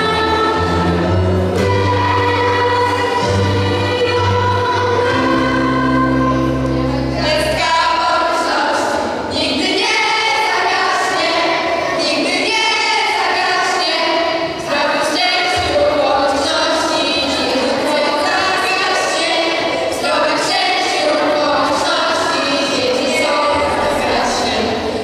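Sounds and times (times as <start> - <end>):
backing track: 0.0 - 8.4
girls singing together: 0.0 - 25.0.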